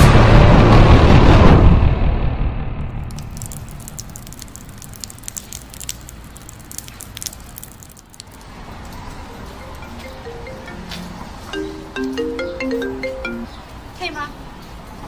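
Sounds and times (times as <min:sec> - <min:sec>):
rain hissing on pavement: 0:02.9 - 0:09.9
sharp drip clicks: 0:03.0 - 0:10.2.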